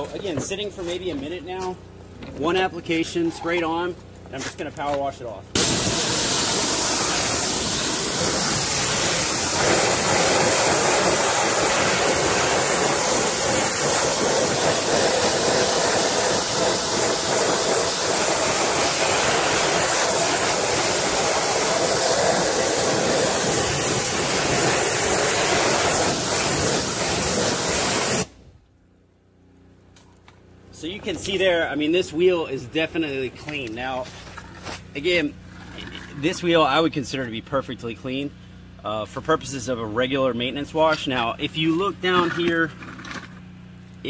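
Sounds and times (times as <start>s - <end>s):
pressure washer water hiss: 5.6s - 28.4s.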